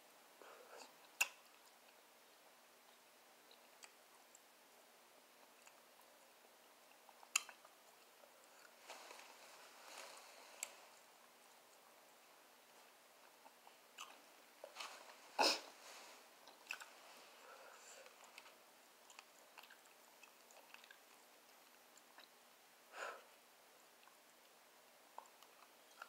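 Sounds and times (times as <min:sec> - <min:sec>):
person chewing meat: 0:05.4 - 0:08.8, 0:13.2 - 0:14.8, 0:16.4 - 0:17.0, 0:18.0 - 0:22.4.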